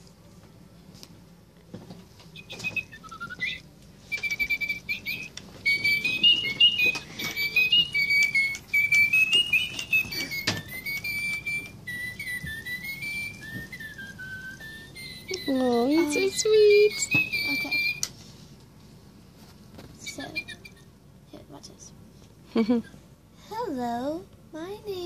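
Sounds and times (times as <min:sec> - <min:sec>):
toy bird chirping: 0:02.4 - 0:18.1, 0:20.1 - 0:20.9.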